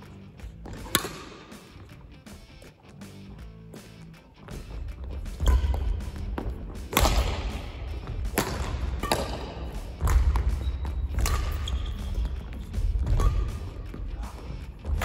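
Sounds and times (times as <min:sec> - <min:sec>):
racket striking shuttlecock: 0:00.6 - 0:02.4, 0:05.2 - 0:14.0
footsteps thudding on court: 0:03.3 - 0:15.0.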